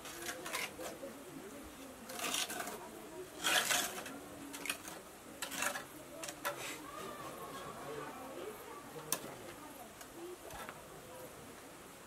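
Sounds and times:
trowel scraping wet mortar: 0.0s - 1.0s, 2.1s - 6.8s.

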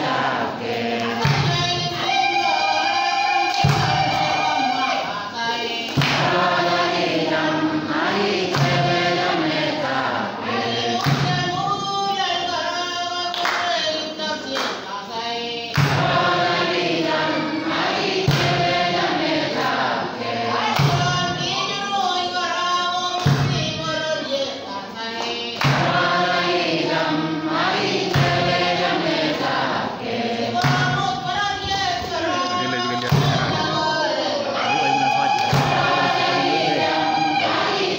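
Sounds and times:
choir singing: 0.0s - 12.6s, 14.9s - 22.6s, 24.5s - 37.9s
sharp knocks: 8.4s - 9.2s, 25.6s - 26.0s, 28.0s - 28.6s.

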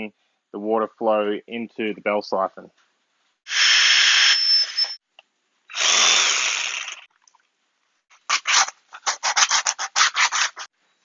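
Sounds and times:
power drill boring through plastic pipe: 3.5s - 5.0s, 5.7s - 7.1s
scraping on plastic pipe: 8.3s - 10.7s.

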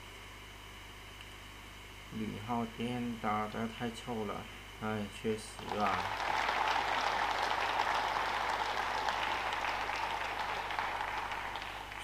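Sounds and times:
audience applause: 5.6s - 12.0s.

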